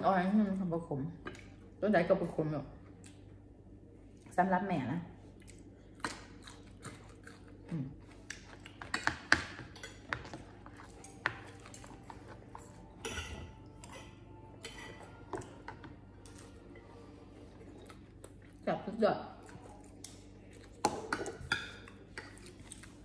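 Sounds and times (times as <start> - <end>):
chewing: 5.2 - 18.6, 19.4 - 23.0
cutlery clinking on plates: 13.0 - 16.4.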